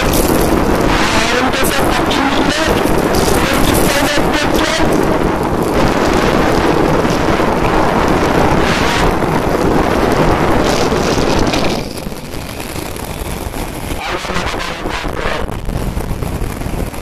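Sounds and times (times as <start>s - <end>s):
motorcycle engine revving high: 0.0s - 12.0s
wind buffeting microphone: 0.0s - 17.0s.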